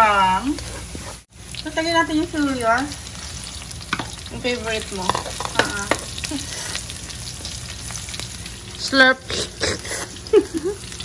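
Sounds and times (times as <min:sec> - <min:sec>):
garlic sizzling in oil: 0:00.0 - 0:11.0
utensil knocking against pan: 0:05.0 - 0:06.1.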